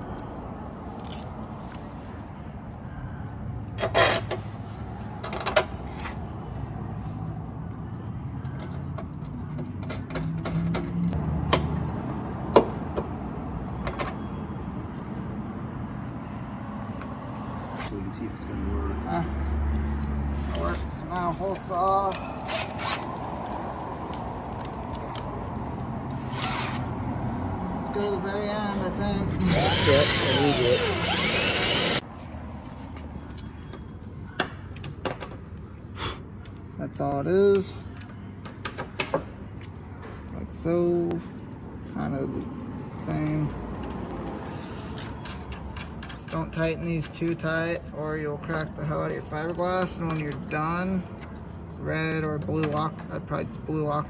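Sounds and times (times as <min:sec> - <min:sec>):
cordless drill cutting panel: 0:29.4 - 0:32.0.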